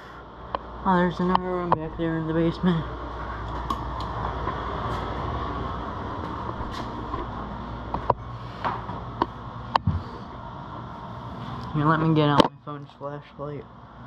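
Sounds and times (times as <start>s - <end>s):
low rumbling hum: 0.0s - 14.0s.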